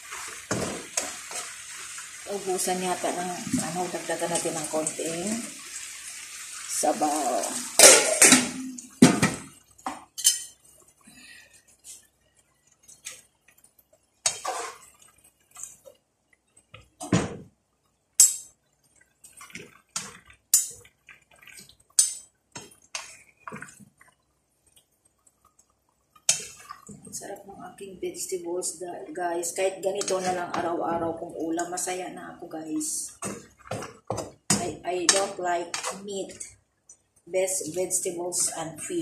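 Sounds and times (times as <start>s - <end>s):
metal utensils scraping frying pan: 14.2s - 15.0s, 29.9s - 30.7s.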